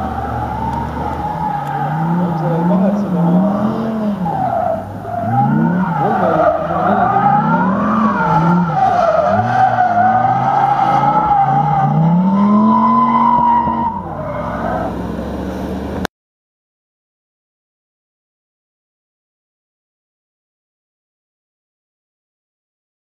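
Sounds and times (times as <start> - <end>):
tyres squealing: 0.0 - 15.2
car engine revving: 0.0 - 16.1.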